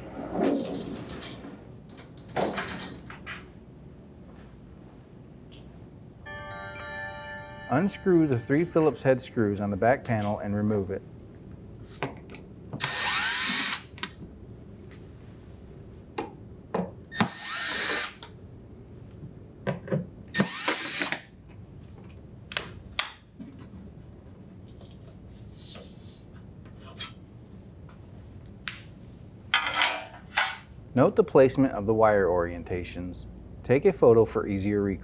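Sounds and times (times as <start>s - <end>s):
cordless drill running: 12.8s - 13.9s, 17.2s - 18.2s.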